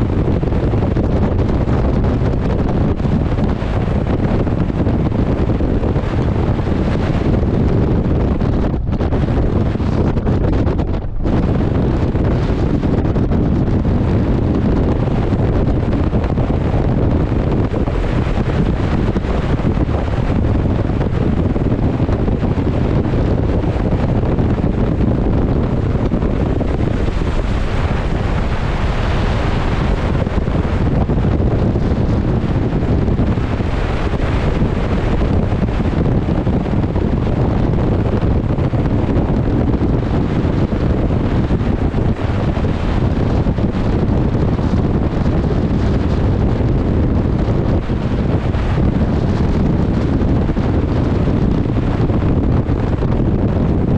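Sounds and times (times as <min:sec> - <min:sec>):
rough sea washing: 0:00.0 - 0:53.9
wind buffeting microphone: 0:00.0 - 0:53.9.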